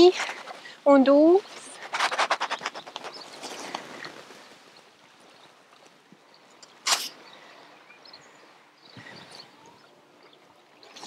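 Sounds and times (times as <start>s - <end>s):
clothing rubbing on microphone: 0.0s - 0.7s, 1.3s - 4.6s
lake water lapping: 0.0s - 11.0s.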